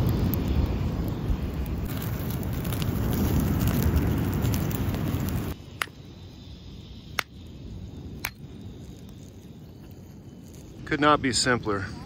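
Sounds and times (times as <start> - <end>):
campfire crackling: 0.0 - 12.0.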